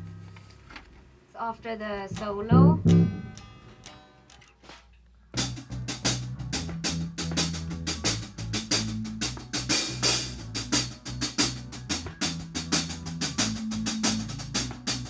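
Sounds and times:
bass line: 0.0 - 0.3, 2.1 - 3.4, 5.4 - 15.0
drum kit playing a beat: 2.1 - 4.0, 5.4 - 15.0.

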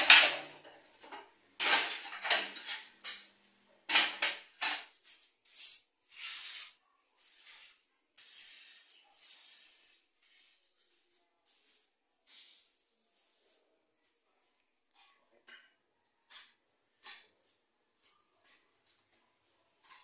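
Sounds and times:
scraping on concrete floor: 3.9 - 13.6, 14.9 - 19.2, 19.8 - 20.0.

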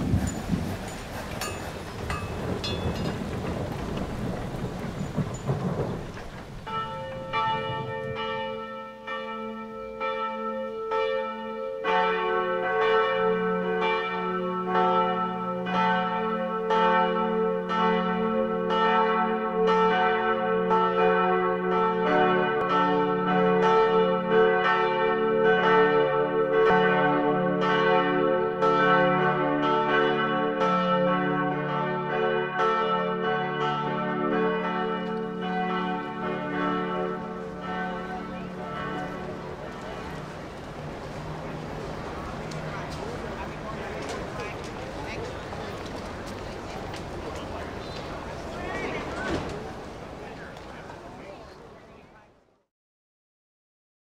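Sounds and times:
thunder: 0.0 - 8.6, 38.3 - 50.2
rain: 0.0 - 10.0, 32.0 - 52.1
bells ringing: 0.0 - 51.7.

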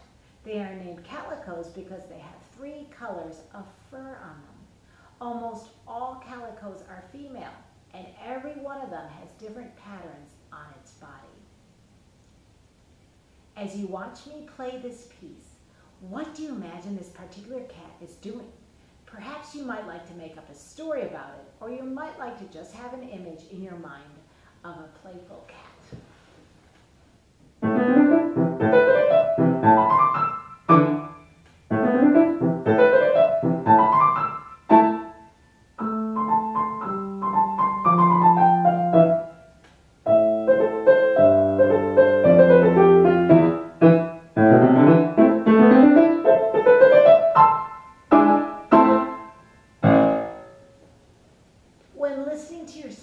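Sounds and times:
grand piano piece: 27.6 - 50.8.

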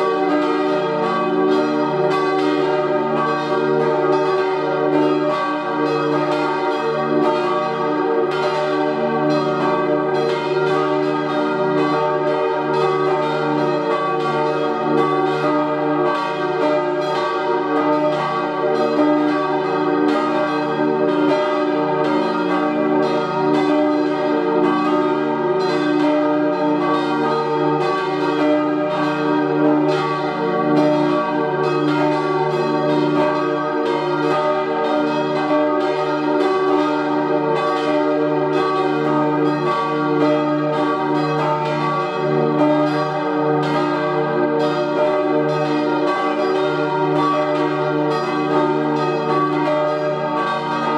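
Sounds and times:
church bells ringing a peal: 0.0 - 50.9.

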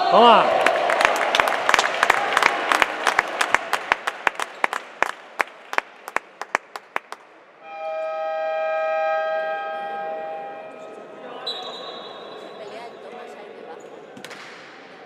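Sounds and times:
crowd hand claps: 0.5 - 7.4
buzzing game horn: 7.6 - 11.0.

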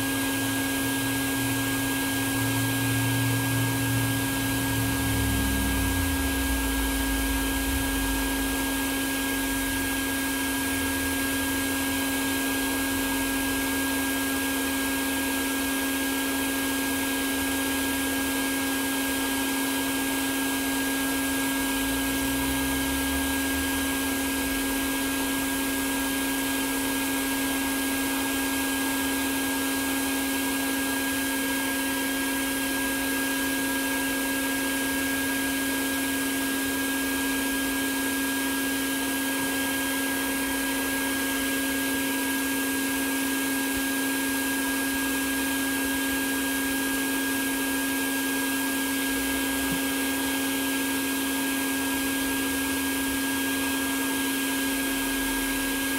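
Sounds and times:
bee vacuum running: 0.0 - 55.9.

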